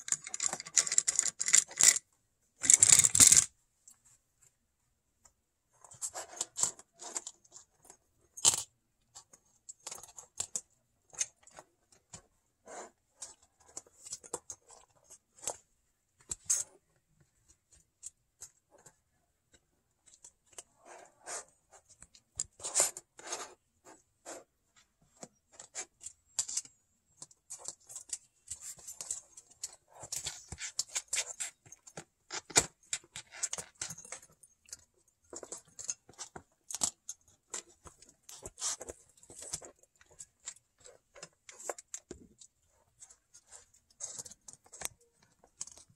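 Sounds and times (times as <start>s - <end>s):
sharp plastic clacks: 2.6s - 3.5s.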